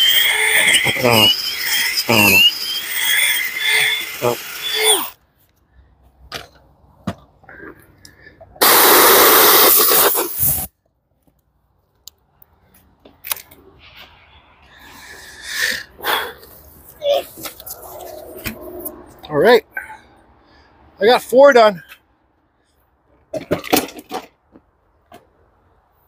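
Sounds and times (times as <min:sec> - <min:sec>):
compressed air hissing from nozzle: 0:08.6 - 0:10.7.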